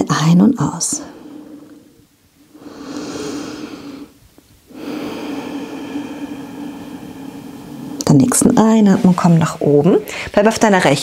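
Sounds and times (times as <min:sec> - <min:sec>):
woman breathing through nose: 0:01.0 - 0:08.6.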